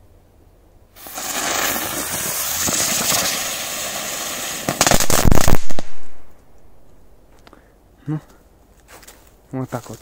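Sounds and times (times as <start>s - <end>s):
firework hissing and crackling: 1.0s - 6.0s.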